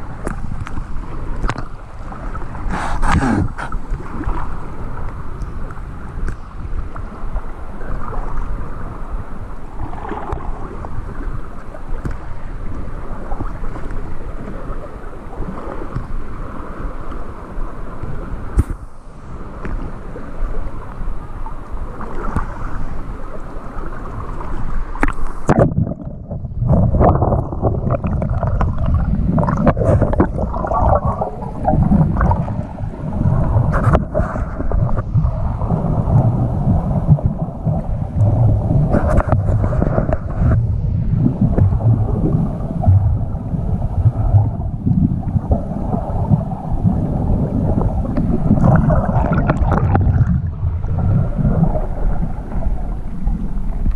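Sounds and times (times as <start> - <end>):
muffled underwater rumble: 0.0 - 53.9
water sloshing: 25.0 - 36.2, 47.6 - 53.1
wind buffeting camera: 25.4 - 53.9.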